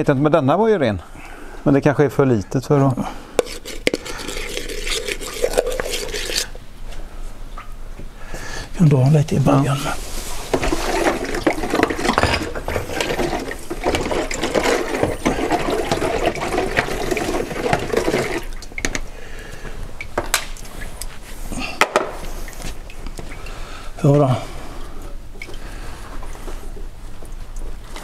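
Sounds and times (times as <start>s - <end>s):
liquid pouring into basin: 3.4s - 6.6s, 10.5s - 19.1s.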